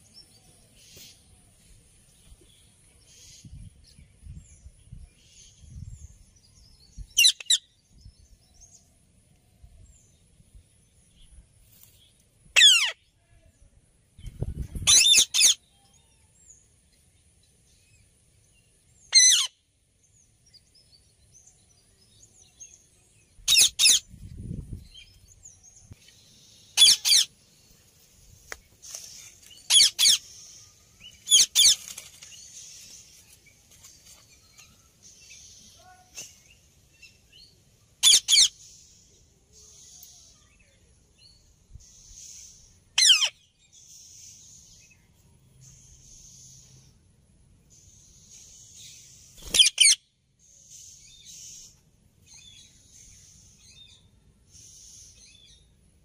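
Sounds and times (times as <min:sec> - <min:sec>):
parakeets calling: 0:07.2 - 0:07.6, 0:12.6 - 0:13.0, 0:14.8 - 0:15.6, 0:19.1 - 0:19.5, 0:23.4 - 0:24.1, 0:26.7 - 0:27.4, 0:29.6 - 0:31.8, 0:38.0 - 0:38.7, 0:42.3 - 0:43.5, 0:48.4 - 0:50.0
parakeet chatter: 0:19.2 - 0:19.5, 0:23.5 - 0:24.0, 0:26.8 - 0:27.3, 0:29.6 - 0:30.3, 0:31.2 - 0:31.8, 0:38.0 - 0:38.5, 0:43.0 - 0:43.3, 0:49.4 - 0:50.0.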